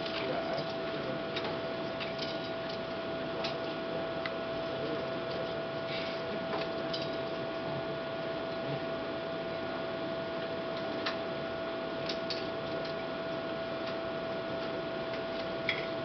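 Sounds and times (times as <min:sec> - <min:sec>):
clicks and crackles: 0:00.0 - 0:05.9, 0:12.0 - 0:13.1
constant hum tone: 0:00.0 - 0:16.0.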